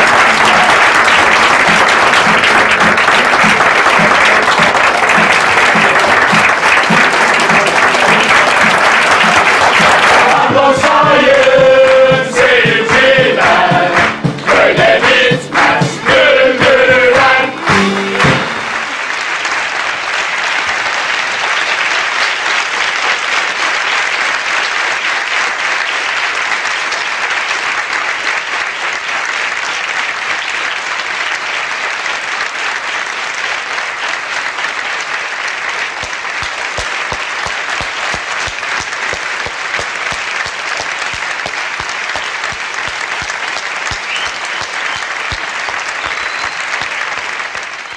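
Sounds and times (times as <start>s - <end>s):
audience applauding: 0.0s - 47.9s
group singing with music: 1.7s - 18.8s.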